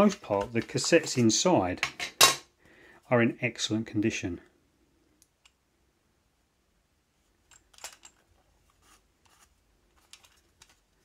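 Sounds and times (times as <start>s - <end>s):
plastic cassette clicks and rubbing: 9.3s - 11.0s.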